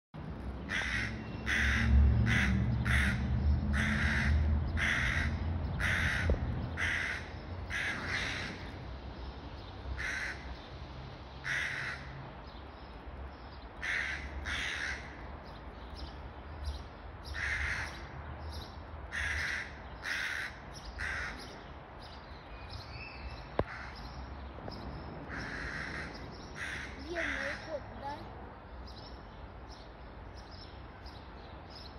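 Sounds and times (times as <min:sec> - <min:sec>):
crows cawing harshly: 0:00.7 - 0:08.8, 0:10.0 - 0:10.6, 0:11.4 - 0:12.2, 0:13.8 - 0:15.2, 0:17.3 - 0:18.1, 0:19.1 - 0:21.6, 0:23.6 - 0:24.1, 0:25.3 - 0:27.8.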